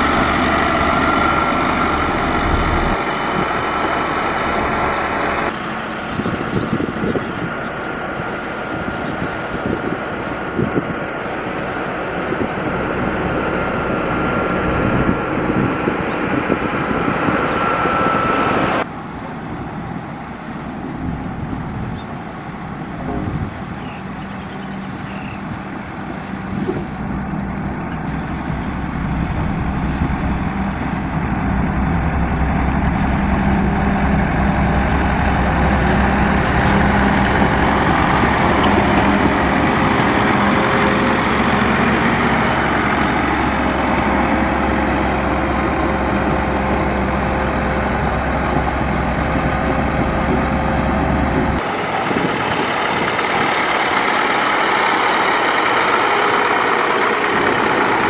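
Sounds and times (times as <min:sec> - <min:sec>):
heavy diesel engine rumbling: 0:00.0 - 0:58.0
steady hum: 0:27.0 - 0:43.9.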